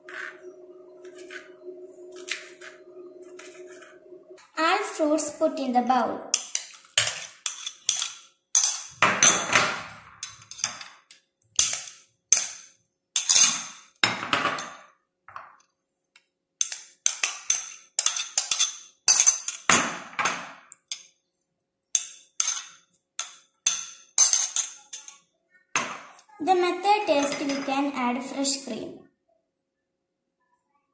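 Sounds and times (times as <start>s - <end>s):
metal spoons clinking on bowls: 1.0s - 1.5s, 6.3s - 15.6s, 16.6s - 21.2s, 21.9s - 25.2s, 27.0s - 27.9s.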